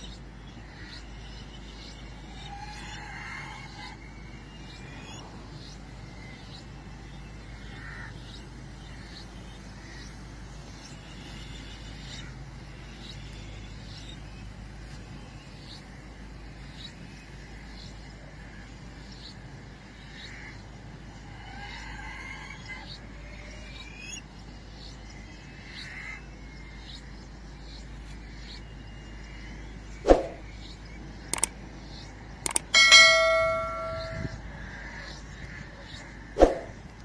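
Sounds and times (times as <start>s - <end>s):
low street rumble and hiss: 0.0s - 32.8s, 34.3s - 37.0s
short high chirps: 32.5s - 34.4s.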